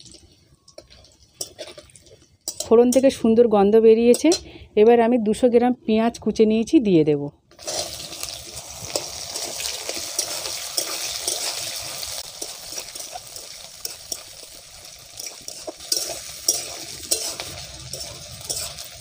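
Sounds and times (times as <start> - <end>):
metal spatula scraping and clinking: 0.0 - 3.2, 4.1 - 4.5, 7.5 - 19.0
onions sizzling in hot oil: 0.0 - 3.4, 7.5 - 19.0.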